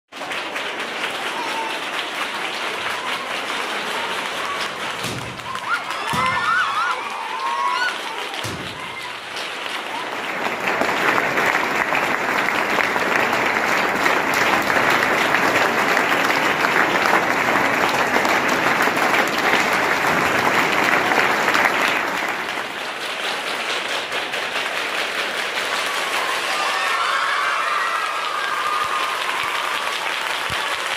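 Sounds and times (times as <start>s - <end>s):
crowd clapping: 0.0s - 30.9s.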